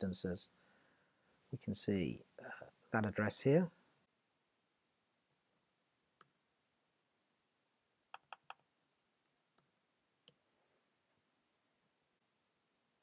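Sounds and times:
computer mouse clicks: 0:06.0 - 0:06.4, 0:08.1 - 0:08.6.

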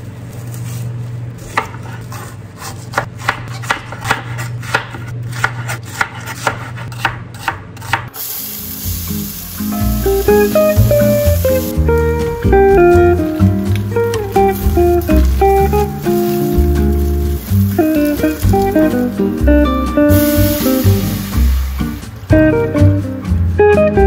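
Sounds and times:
knife chopping on cutting board: 0:01.4 - 0:08.1
onion and garlic sizzling: 0:08.1 - 0:24.0
music: 0:08.2 - 0:24.0.

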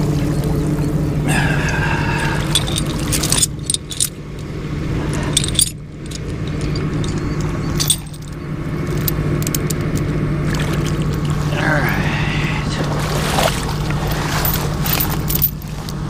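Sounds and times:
water splashing from wading: 0:00.0 - 0:03.8, 0:10.3 - 0:16.0
truck engine humming: 0:00.0 - 0:16.0
sharp clinks and ticks: 0:02.2 - 0:11.4, 0:14.4 - 0:15.7.

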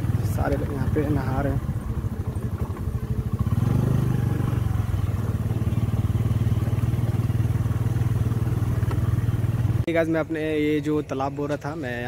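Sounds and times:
small motorbike engine running: 0:00.0 - 0:09.9.

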